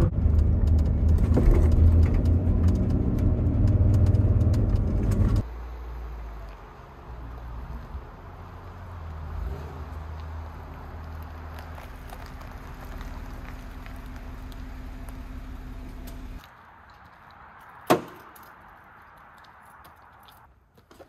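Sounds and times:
car engine running: 0:00.0 - 0:05.4, 0:12.2 - 0:16.4.

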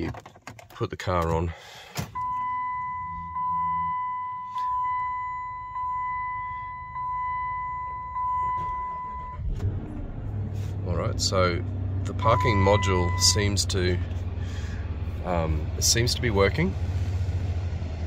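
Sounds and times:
dashboard warning chime beeping: 0:02.2 - 0:09.5, 0:12.2 - 0:13.6.

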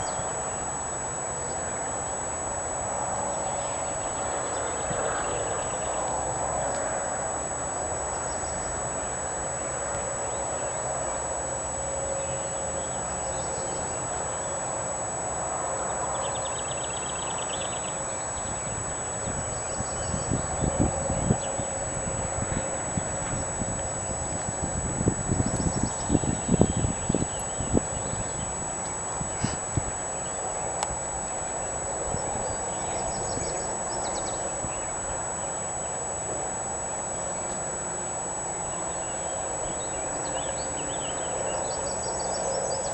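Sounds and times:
outdoor background hiss: 0:00.0 - 0:42.9
songbirds chirping: 0:15.8 - 0:23.6, 0:24.2 - 0:36.1, 0:38.5 - 0:42.9.

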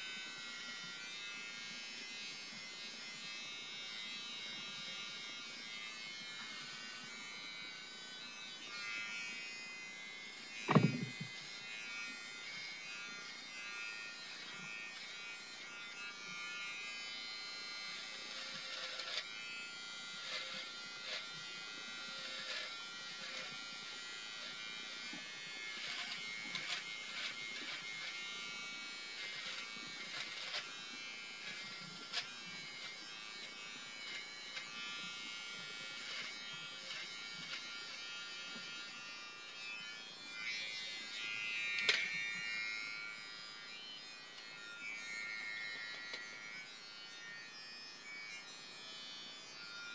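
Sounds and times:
beard trimmer buzzing: 0:00.0 - 0:49.9
trimmer cutting hair crackling: 0:00.0 - 0:49.9
loud knock: 0:10.7 - 0:11.3.

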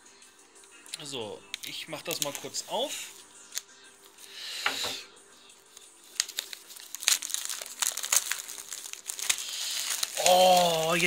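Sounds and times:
plastic shrink wrap crinkling: 0:01.5 - 0:03.7, 0:06.0 - 0:11.0.

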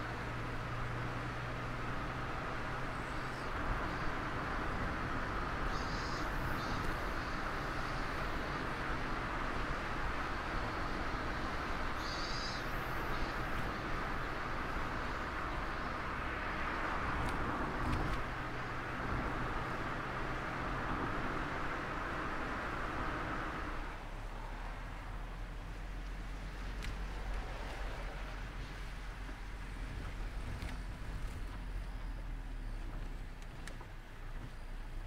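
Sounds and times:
car engine humming: 0:00.0 - 0:35.0
wind and tyre rush: 0:00.0 - 0:35.0.

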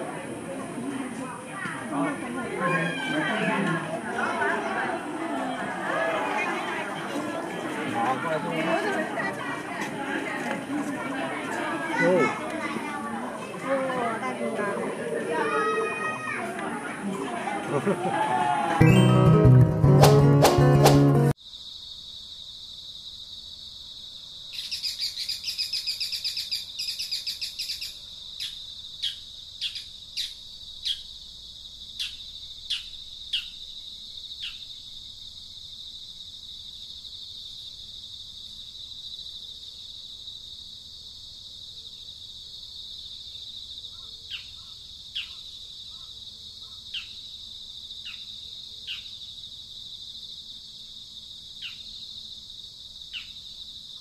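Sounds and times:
downward-sliding call notes: 0:18.8 - 0:21.3
high insect drone: 0:21.4 - 0:54.0
rapid bird chirping: 0:24.6 - 0:31.1.

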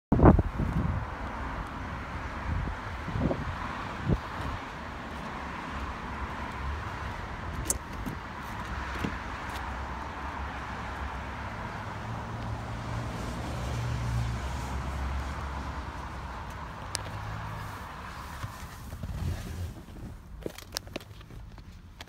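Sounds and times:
wind on microphone: 0:00.1 - 0:05.0
outdoor background noise: 0:00.1 - 0:22.0.

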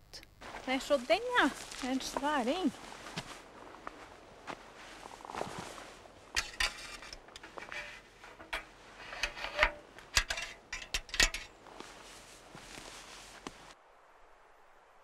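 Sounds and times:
rustling: 0:00.4 - 0:13.8
metal trap clicks and knocks: 0:06.4 - 0:11.5.

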